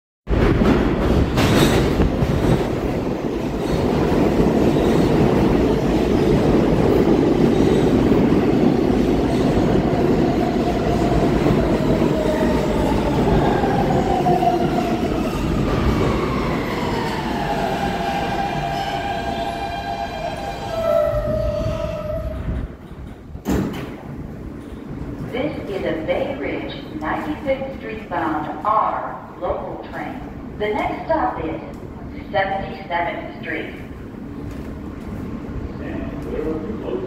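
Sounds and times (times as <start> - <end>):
train wheels rumbling on rails: 0.3 - 27.5.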